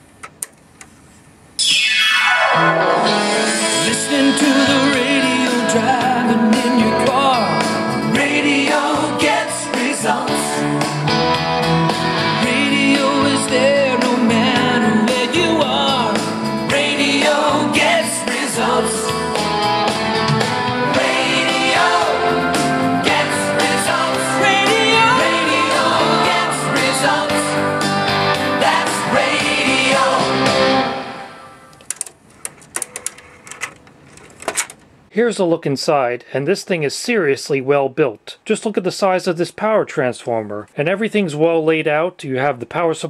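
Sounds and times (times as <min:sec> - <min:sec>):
pop-rock song with singing: 0:03.0 - 0:31.3.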